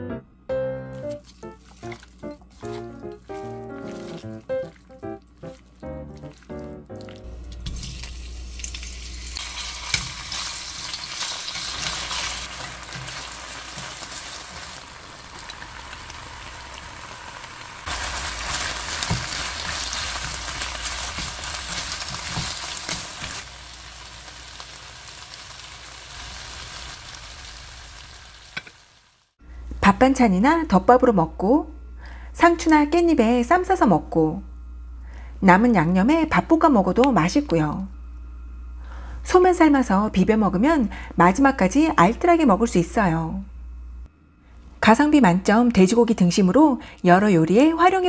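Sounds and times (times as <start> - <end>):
food sizzling in a frying pan: 7.7 - 29.4.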